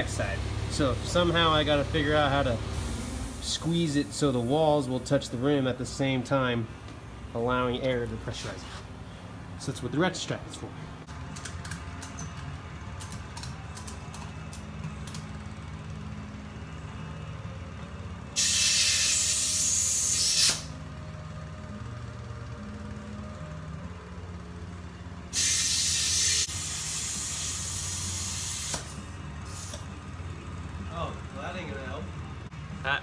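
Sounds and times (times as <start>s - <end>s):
compressed air hissing into tire: 2.6s - 5.0s, 18.4s - 20.8s, 25.3s - 29.9s.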